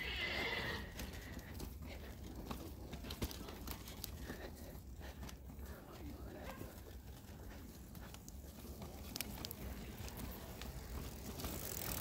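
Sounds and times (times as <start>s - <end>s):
horse whinnying: 0.0s - 1.0s.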